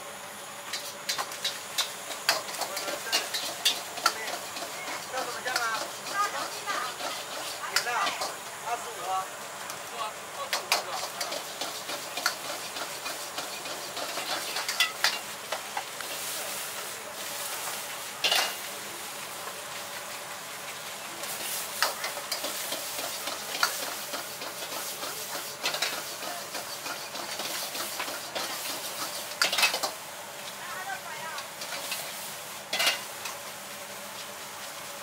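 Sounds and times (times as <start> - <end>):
rice sizzling in a wok: 0.0 - 35.0
metal ladle scraping wok: 0.7 - 8.4, 11.0 - 15.3.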